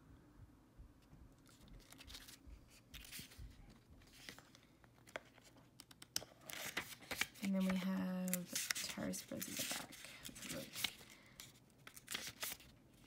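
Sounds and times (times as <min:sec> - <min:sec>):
paper pages rustling and turning: 0:01.4 - 0:13.0
pages flicking: 0:04.0 - 0:11.1, 0:11.8 - 0:12.7.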